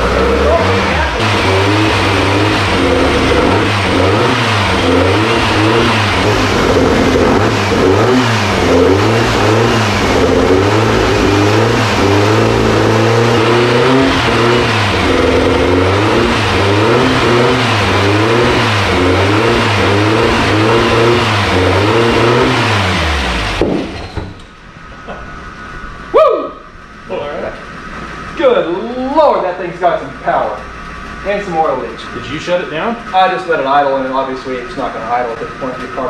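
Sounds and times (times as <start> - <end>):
car engine revving: 0.0 - 26.1
engine running down: 0.0 - 36.0.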